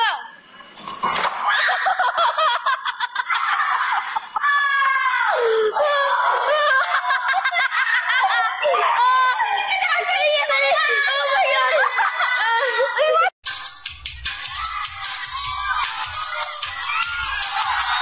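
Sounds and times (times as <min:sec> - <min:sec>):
high-pitched voices laughing: 0:01.5 - 0:13.3.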